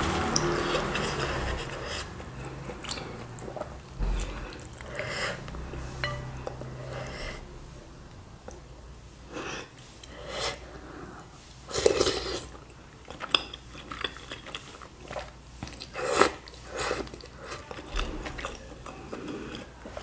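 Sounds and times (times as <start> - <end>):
noodles being slurped: 0.0 - 5.9
chewing: 0.2 - 7.2, 11.7 - 20.0.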